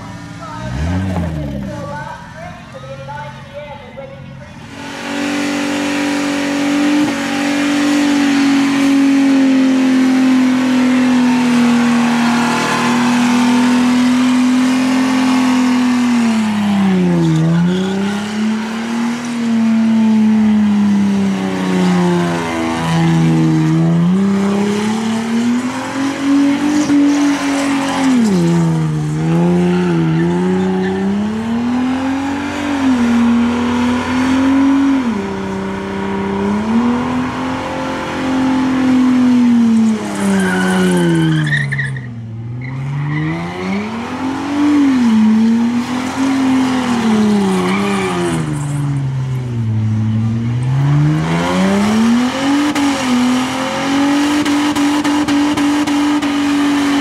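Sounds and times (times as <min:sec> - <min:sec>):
car engine revving high: 0:00.0 - 0:02.3, 0:04.6 - 0:57.0
tyres screeching: 0:04.5 - 0:34.8, 0:38.4 - 0:49.2.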